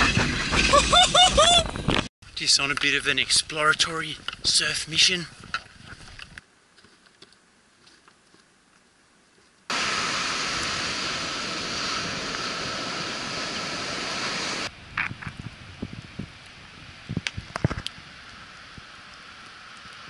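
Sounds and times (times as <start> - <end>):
surf washing up a beach: 9.7 - 14.7.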